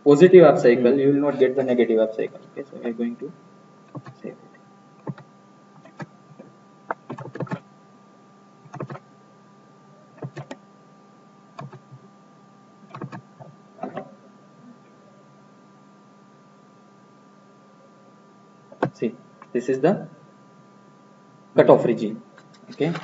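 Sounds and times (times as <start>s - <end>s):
faint electrical hum: 0.0s - 23.0s
mouse and keyboard clicks: 3.9s - 4.2s, 5.8s - 6.1s, 6.9s - 7.6s, 8.7s - 9.0s, 10.2s - 10.6s, 11.6s - 11.9s, 12.9s - 14.0s.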